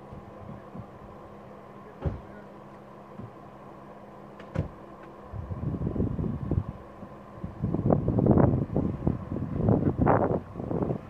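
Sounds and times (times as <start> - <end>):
truck engine running: 0.0 - 11.0
sharp clunks: 2.0 - 2.3, 4.4 - 5.1
wind buffeting microphone: 5.2 - 11.0.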